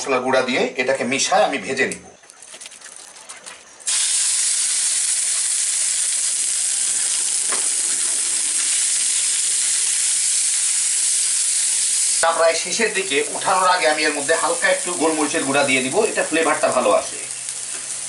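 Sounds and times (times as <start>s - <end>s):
meat sizzling in frying pan: 3.9s - 18.0s.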